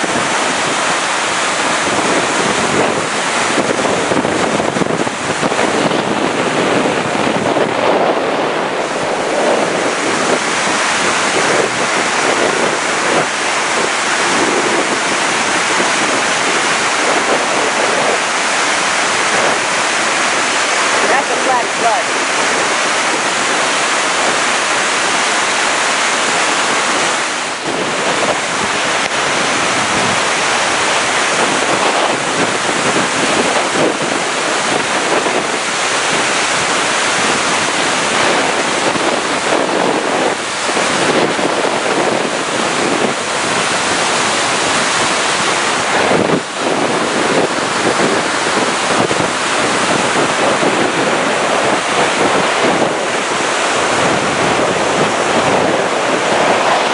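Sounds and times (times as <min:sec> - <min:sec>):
flood water rushing over blocks: 0:00.0 - 0:56.9.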